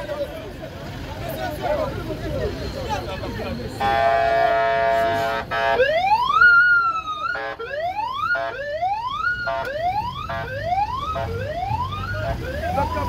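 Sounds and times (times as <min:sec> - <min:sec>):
short horn blasts: 0:03.8 - 0:05.8
steady horn tone: 0:03.8 - 0:05.9.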